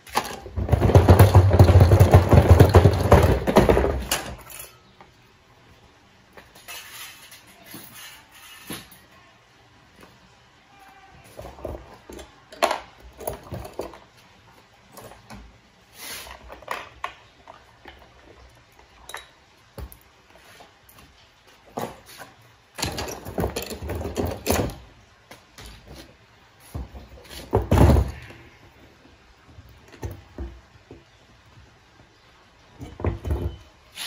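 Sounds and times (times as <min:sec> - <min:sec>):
machine parts knocking and clattering: 0:00.1 - 0:04.8, 0:22.8 - 0:24.8.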